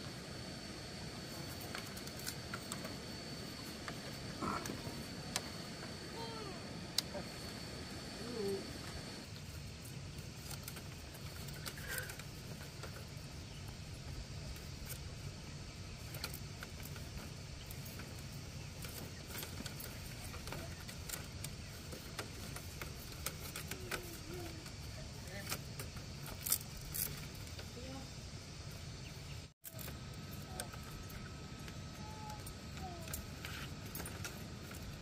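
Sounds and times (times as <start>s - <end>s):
bamboo strips clicking and rattling: 9.3s - 28.0s.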